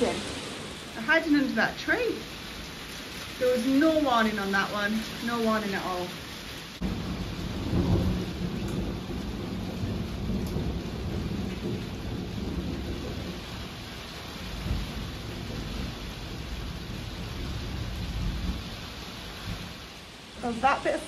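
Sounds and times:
heavy rain on a roof: 0.0s - 21.0s
thunder rumbling: 0.0s - 21.0s.

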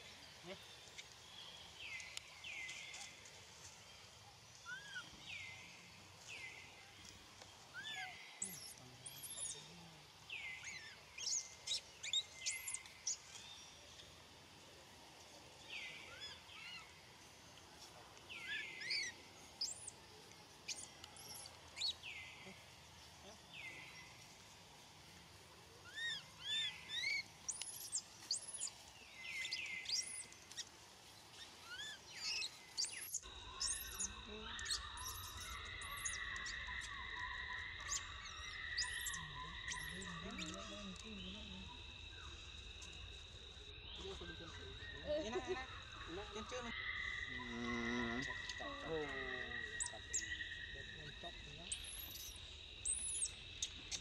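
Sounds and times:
steady hum and hiss: 0.0s - 46.0s.

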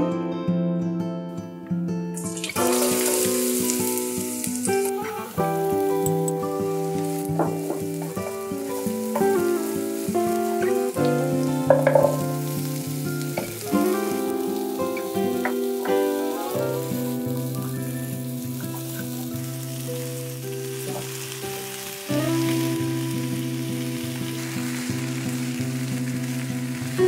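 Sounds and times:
gentle background music: 0.0s - 27.0s
garlic sizzling in hot oil: 2.2s - 27.0s
chopsticks stirring in pan: 2.4s - 17.6s
onion dropped into pan: 11.6s - 12.5s.

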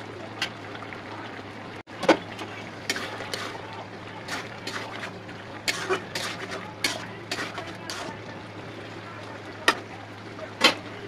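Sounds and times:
pan sizzling: 2.8s - 8.2s
spatula scraping a pan: 2.9s - 3.6s, 4.2s - 8.2s
spatula clanking on pan: 5.7s - 8.1s.

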